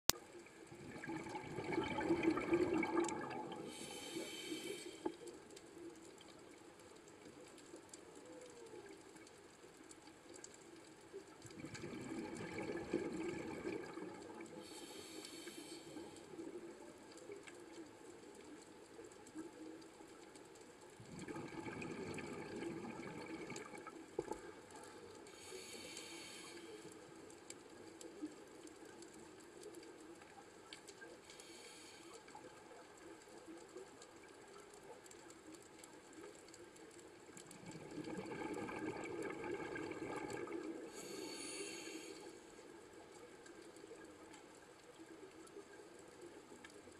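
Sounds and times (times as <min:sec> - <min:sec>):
regulator breathing bubbles: 0:00.8 - 0:05.2
regulator hiss: 0:03.7 - 0:05.1, 0:25.3 - 0:26.9, 0:41.0 - 0:42.4.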